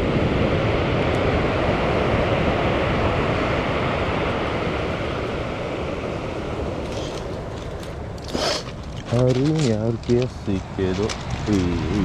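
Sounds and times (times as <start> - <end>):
waves breaking on pebble beach: 0.1 - 12.0.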